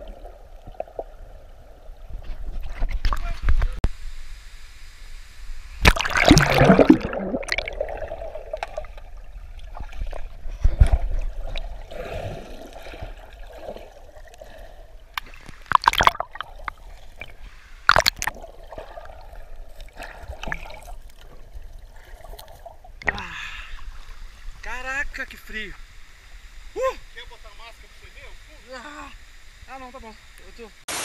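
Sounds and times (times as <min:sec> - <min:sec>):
water splash: 0:05.8 - 0:21.3
muffled underwater bubbling: 0:05.9 - 0:15.0.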